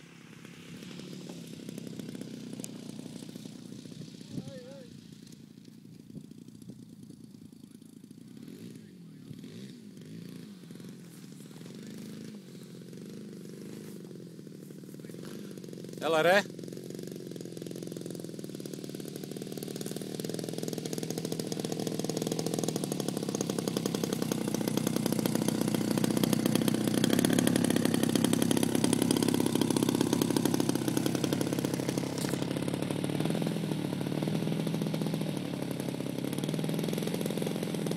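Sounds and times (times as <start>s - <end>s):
model plane engine idling: 0.0s - 37.9s.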